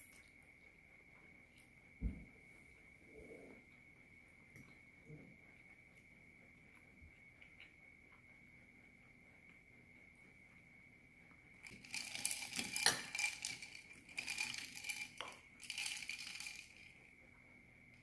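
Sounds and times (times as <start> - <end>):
ice cubes clinking in a glass: 11.7 - 16.9.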